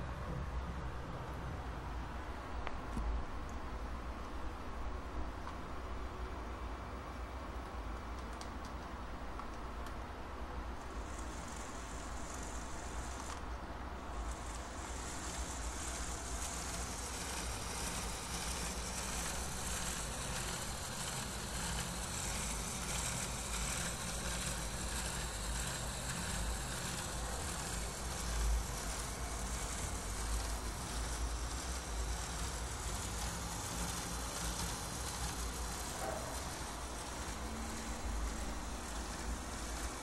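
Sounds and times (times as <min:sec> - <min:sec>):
toy motor whirring: 0:10.8 - 0:40.0.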